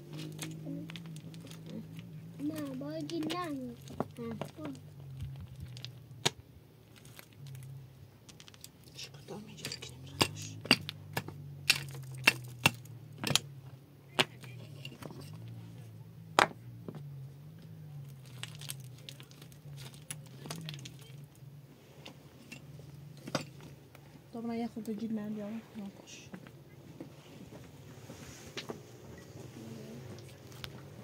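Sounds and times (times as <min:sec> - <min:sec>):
branches cracking and snapping: 0:00.0 - 0:07.7, 0:18.1 - 0:21.4
low wavering hum: 0:00.0 - 0:31.0.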